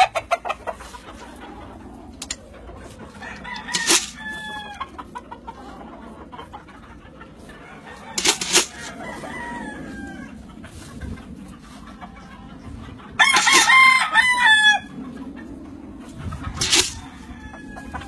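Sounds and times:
roosters crowing: 0.0s - 18.0s
loud sharp noises: 3.7s - 4.2s, 16.6s - 17.1s.

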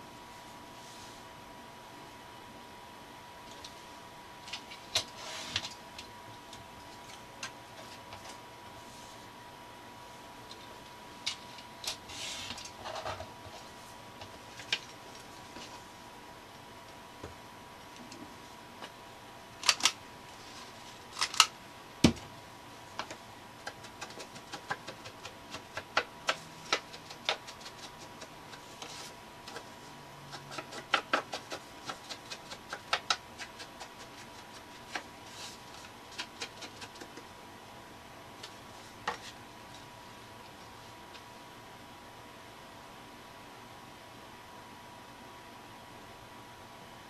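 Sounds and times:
faint steady whine: 0.0s - 47.0s
paper and tools clicking: 19.6s - 20.0s, 21.0s - 21.5s, 23.0s - 37.3s.

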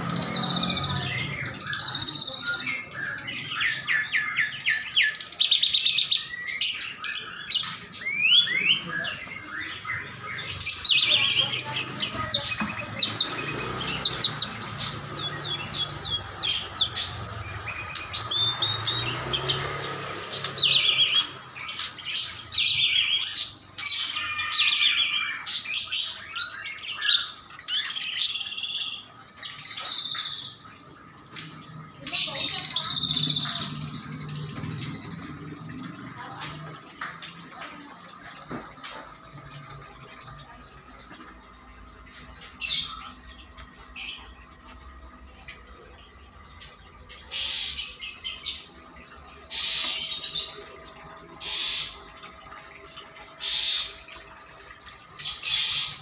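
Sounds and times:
songbirds and parrots chirping: 0.0s - 56.0s.

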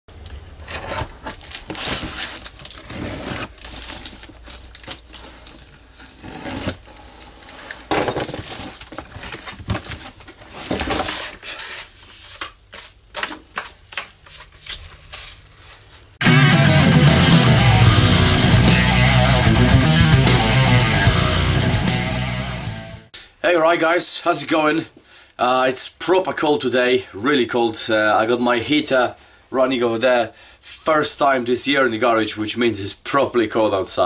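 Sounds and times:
cardboard rustling and scraping: 0.5s - 16.2s
blade cutting packing tape: 6.0s - 7.2s
heavy rock music: 16.2s - 23.1s.

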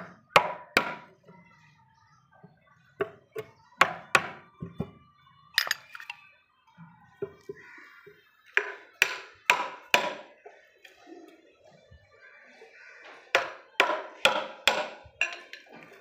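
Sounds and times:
hammer striking chisel: 0.0s - 1.1s, 8.6s - 10.2s, 13.4s - 15.6s.

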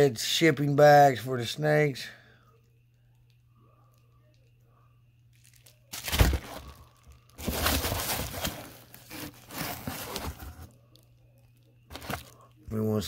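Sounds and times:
packing material crinkling in a box: 5.3s - 12.5s.

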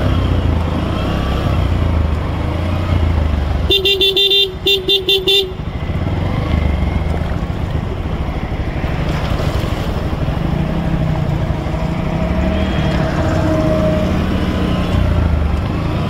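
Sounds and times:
motorcycle engine running: 0.0s - 16.0s
water swishing around wheels: 5.9s - 16.0s.

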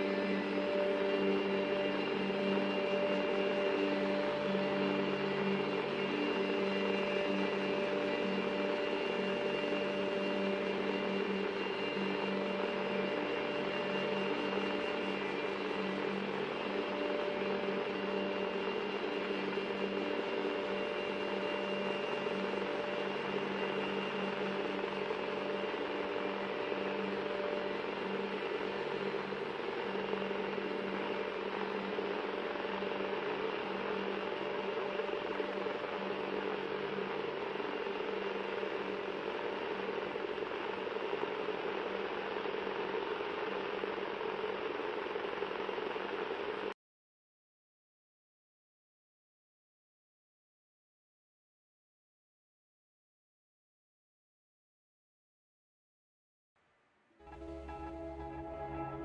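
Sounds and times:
mechanical whirring hum: 0.0s - 46.7s
drone of hiss and hum: 57.3s - 59.0s.

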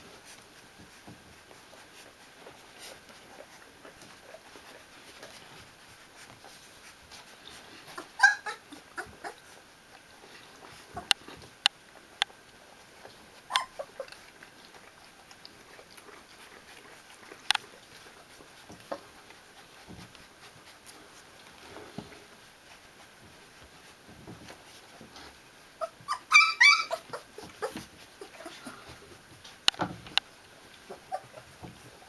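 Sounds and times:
puppies squeaking: 7.9s - 9.4s, 13.5s - 14.2s, 25.8s - 28.9s, 30.9s - 31.6s.

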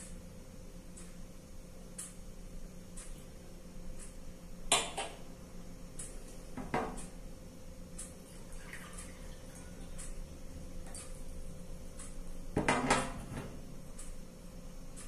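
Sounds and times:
faint ticking: 0.8s - 4.4s, 9.9s - 12.4s, 13.9s - 15.0s.

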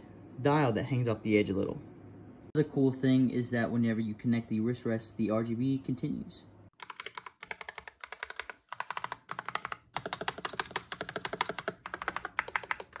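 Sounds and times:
fast keyboard typing: 6.7s - 13.0s.

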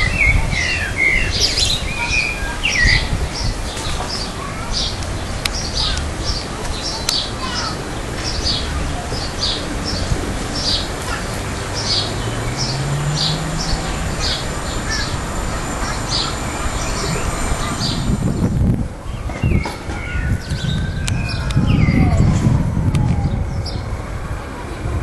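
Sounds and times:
bird chirping: 0.0s - 18.5s
outdoor background noise: 0.0s - 25.0s
low drone rising in pitch: 8.0s - 19.4s, 20.3s - 25.0s.

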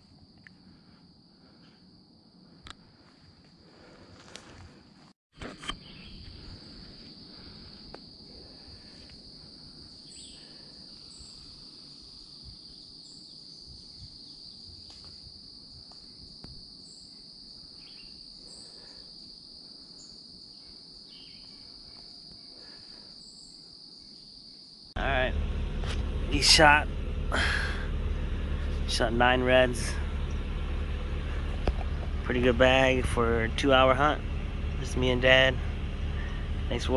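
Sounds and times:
insects trilling: 5.8s - 25.3s.

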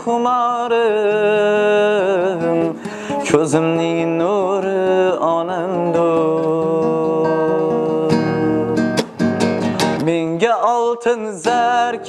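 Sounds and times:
person singing: 0.0s - 12.0s
instrumental accompaniment: 5.1s - 10.8s.

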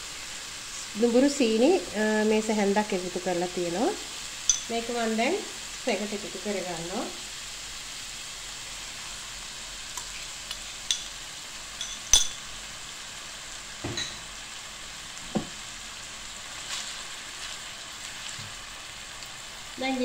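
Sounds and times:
meat sizzling in a frying pan: 0.0s - 20.0s
spoon clinking on bowl and pan: 4.4s - 4.7s, 10.9s - 11.2s, 11.8s - 12.5s, 13.9s - 14.3s.

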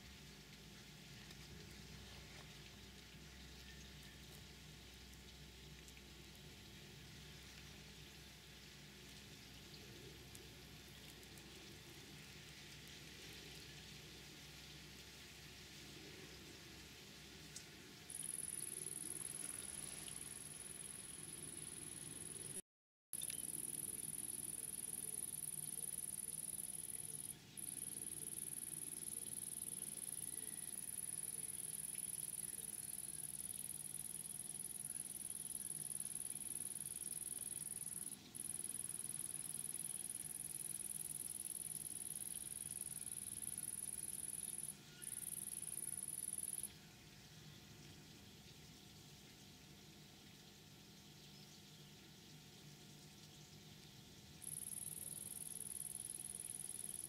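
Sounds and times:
faint steady hiss: 0.0s - 22.6s, 23.2s - 57.0s
faint ticks: 0.4s - 6.6s, 17.5s - 22.6s, 23.2s - 46.7s, 53.2s - 57.0s
high-pitched insect trill: 18.1s - 22.6s, 23.2s - 46.8s, 54.4s - 57.0s.

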